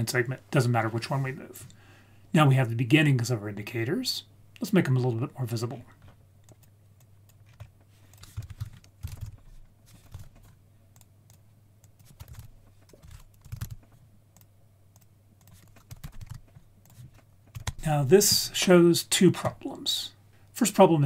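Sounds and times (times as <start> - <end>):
faint low hum: 0.0 - 21.0
typing on computer keyboard: 7.3 - 17.8.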